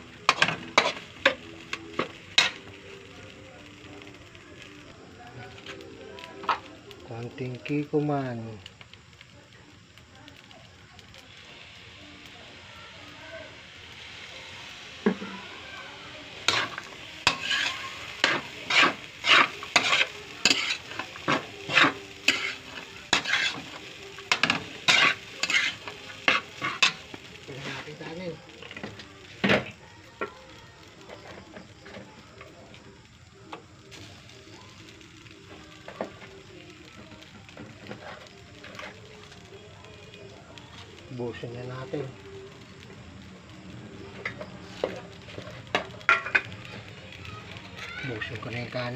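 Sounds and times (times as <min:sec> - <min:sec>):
faint frying sizzle: 0:00.0 - 0:48.9
metal spatula scraping a wok: 0:00.3 - 0:01.4, 0:02.0 - 0:02.7, 0:16.4 - 0:27.1.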